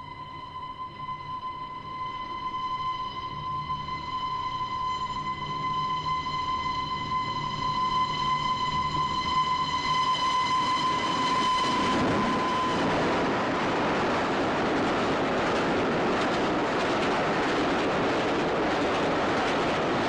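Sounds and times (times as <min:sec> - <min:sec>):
steam train whistle: 0:00.0 - 0:13.3
train rushing and rattling past: 0:03.2 - 0:20.0.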